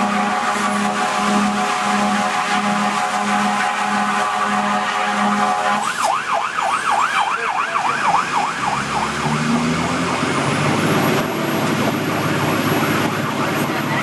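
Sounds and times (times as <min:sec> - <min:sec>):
siren yelping: 0:00.0 - 0:13.4
lower rising siren tone: 0:00.0 - 0:13.7
truck engine and road noise: 0:00.0 - 0:14.0.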